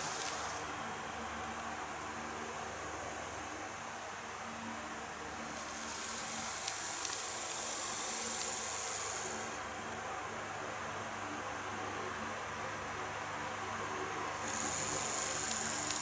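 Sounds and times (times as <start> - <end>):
quick clicks: 0.0 - 0.6, 5.7 - 9.4, 15.0 - 16.0
model train rolling with whir: 0.0 - 0.7, 5.4 - 9.7, 14.4 - 16.0.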